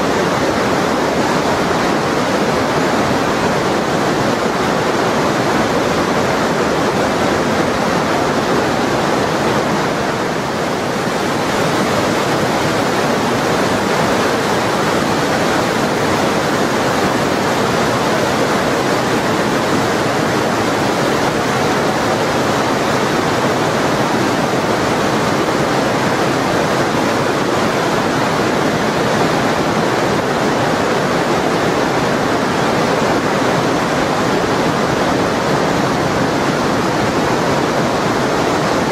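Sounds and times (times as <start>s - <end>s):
river rushing through gorge: 0.0s - 38.9s.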